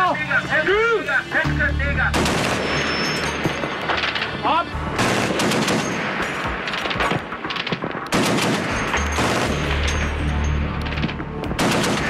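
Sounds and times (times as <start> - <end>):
heavy machine gun bursts: 2.1 - 10.0.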